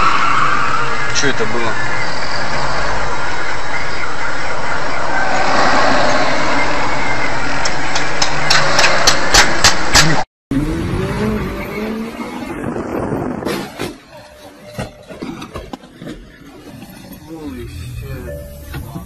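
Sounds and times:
car road and engine noise: 0.0 - 19.0.

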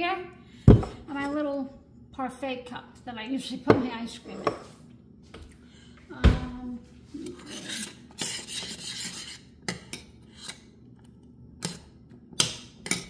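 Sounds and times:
metal spoon scraping saucepan: 7.2 - 10.6.

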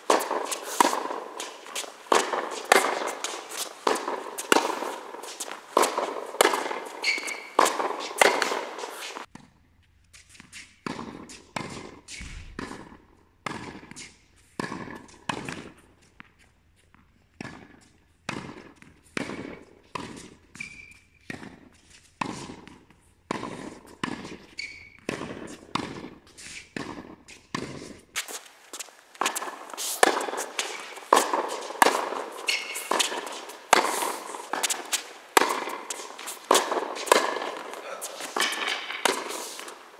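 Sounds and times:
tennis ball struck by rackets: 0.0 - 9.5, 10.8 - 15.8, 22.2 - 24.4, 25.0 - 39.9
ball bouncing on hard court: 0.1 - 8.9, 10.8 - 13.9, 29.2 - 39.9
shoe squeaks: 6.5 - 9.3, 20.5 - 21.2, 24.5 - 25.1, 32.4 - 39.6.

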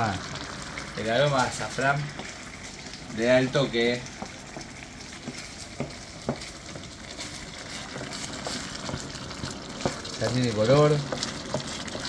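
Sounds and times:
food sizzling in a pan: 0.0 - 12.0
spatula scraping a pan: 5.3 - 10.1.

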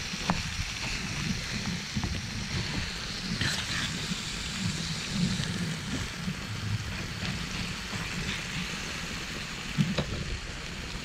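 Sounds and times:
low rumble of gas stove: 0.0 - 11.0
meat sizzling in a pot: 0.0 - 11.0.

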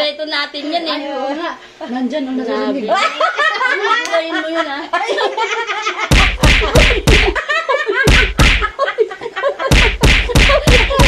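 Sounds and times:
women laughing loudly: 2.9 - 11.0
hands slapping tabletop: 6.1 - 7.4, 8.1 - 8.7, 9.7 - 11.0.

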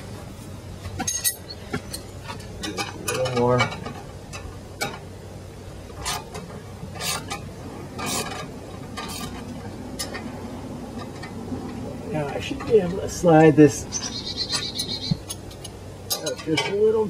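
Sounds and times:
metallic clinks and scrapes: 1.0 - 5.0, 6.0 - 10.3.

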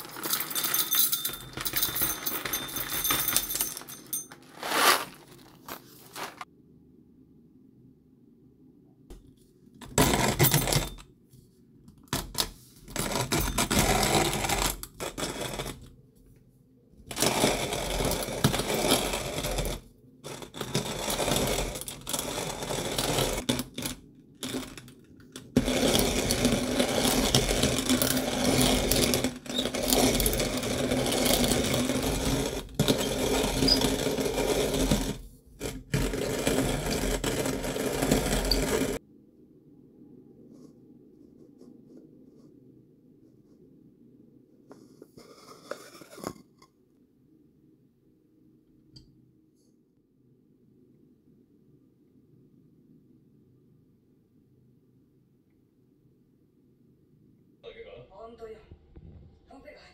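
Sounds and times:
hand-cranked coffee grinder grinding: 13.0 - 15.8, 17.1 - 39.0.

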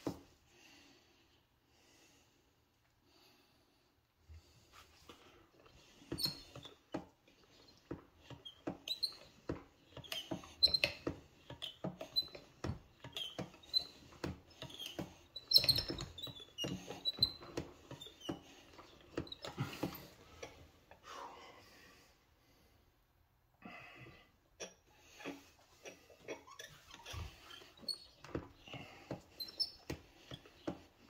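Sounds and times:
short high squeaks: 24.6 - 28.8.

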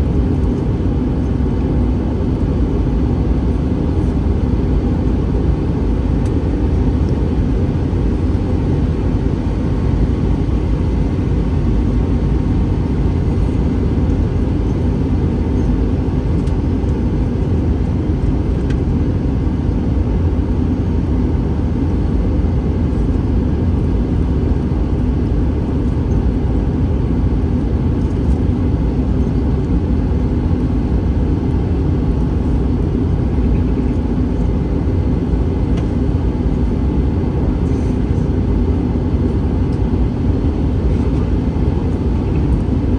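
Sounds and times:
airliner cabin rumble: 0.0 - 42.9.

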